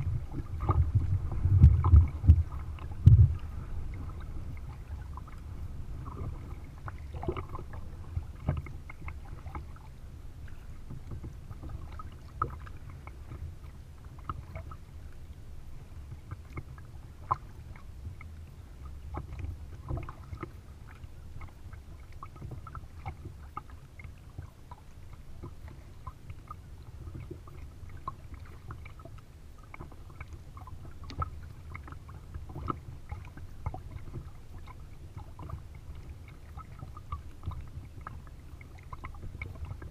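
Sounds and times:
paddle blades splashing: 0:00.0 - 0:39.9
steady low rumble: 0:00.0 - 0:39.9
water lapping against hull: 0:00.0 - 0:39.9.

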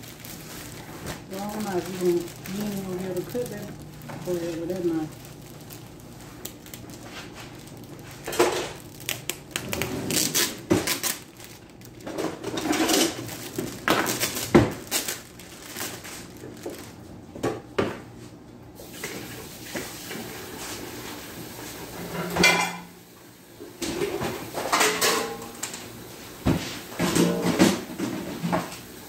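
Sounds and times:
plastic bread bag rustling: 0:00.0 - 0:17.4.

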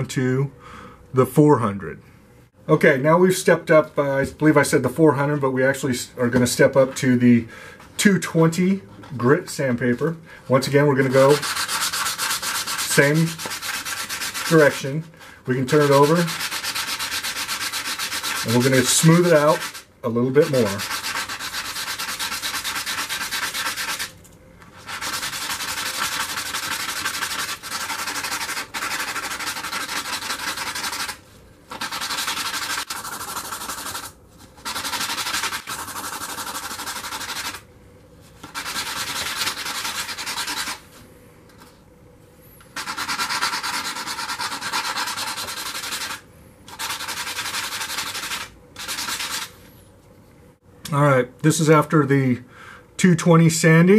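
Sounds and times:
metal rubbing on sandpaper: 0:10.5 - 0:24.1, 0:24.7 - 0:37.6, 0:38.4 - 0:41.0, 0:42.8 - 0:49.6.

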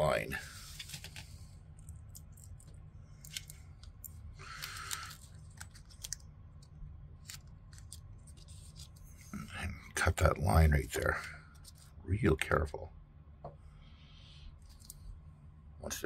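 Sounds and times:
tape rustling: 0:04.5 - 0:09.2.

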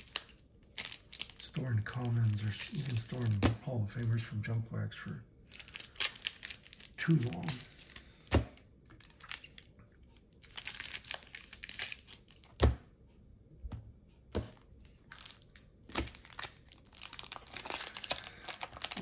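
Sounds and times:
cellophane crinkling and tearing: 0:00.0 - 0:03.5, 0:05.5 - 0:08.3, 0:09.0 - 0:09.7, 0:10.4 - 0:12.6, 0:15.0 - 0:19.0.

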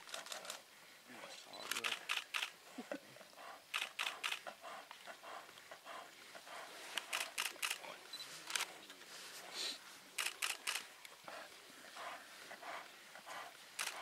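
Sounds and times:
camera shutters clicking: 0:00.0 - 0:00.6, 0:01.6 - 0:02.6, 0:03.7 - 0:04.4, 0:06.9 - 0:07.8, 0:08.4 - 0:08.7, 0:10.2 - 0:10.9, 0:13.8 - 0:14.0.

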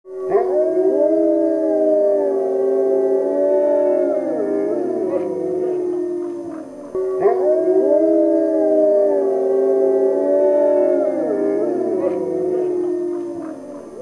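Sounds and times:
wolves howling in chorus: 0:00.1 - 0:14.0.

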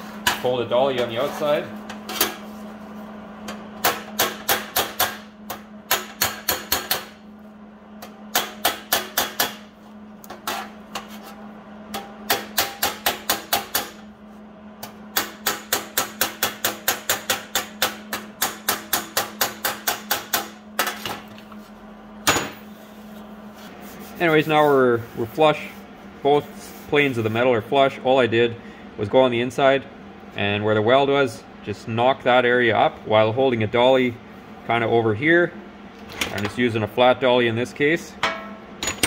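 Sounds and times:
hammer tapping sheet steel: 0:08.3 - 0:09.7, 0:11.9 - 0:14.0.

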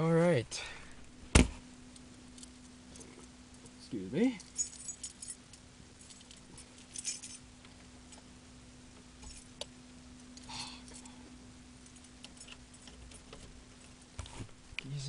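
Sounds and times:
steady low hum: 0:00.0 - 0:15.0
key ring jingling: 0:04.4 - 0:07.4.

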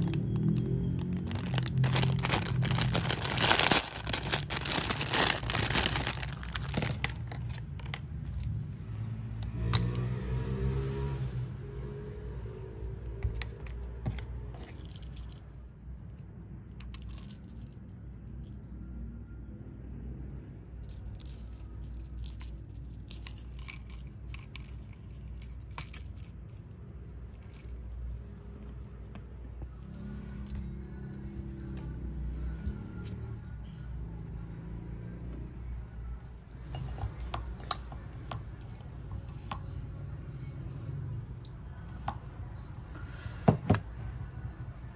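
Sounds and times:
plastic parts clicking and rattling: 0:00.0 - 0:08.6, 0:20.9 - 0:29.2.

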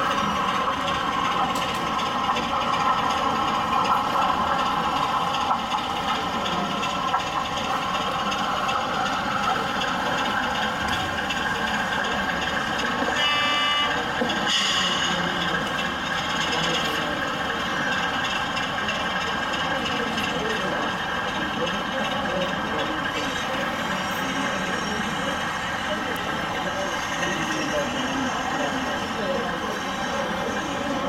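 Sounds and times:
model diesel locomotive engine: 0:00.0 - 0:31.0
horn tone: 0:13.1 - 0:15.2.

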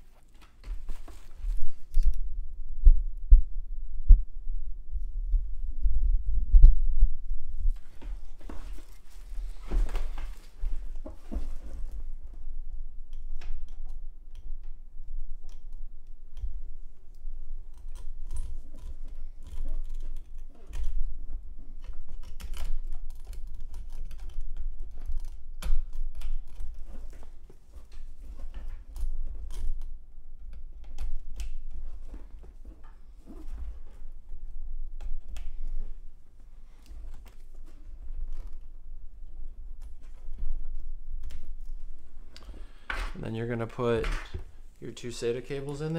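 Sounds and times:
cable connectors clicking and tapping: 0:13.0 - 0:44.9.

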